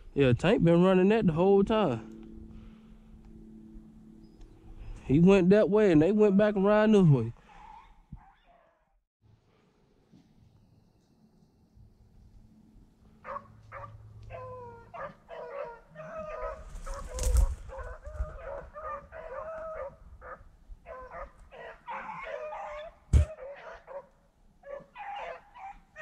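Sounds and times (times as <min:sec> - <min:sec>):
low rumble: 0:02.0 - 0:05.2
hounds baying and yelping: 0:07.4 - 0:08.8, 0:13.2 - 0:26.0
sharp thump: 0:23.1 - 0:23.4.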